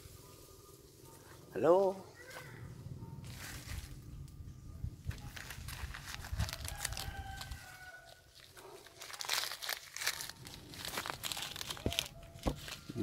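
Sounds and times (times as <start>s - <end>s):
leaves and twigs crackling: 3.2s - 4.4s, 5.0s - 13.0s.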